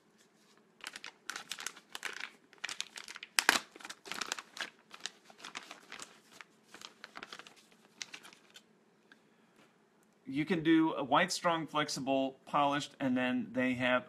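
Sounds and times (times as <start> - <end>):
plastic bag crinkling: 0.2 - 8.7.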